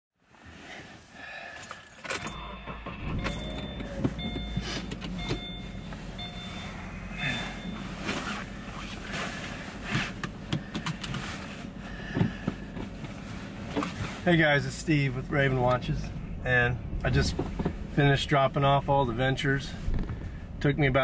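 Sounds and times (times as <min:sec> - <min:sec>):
car engine starting and idling: 0:00.5 - 0:21.0
dashboard warning chime: 0:02.1 - 0:08.8.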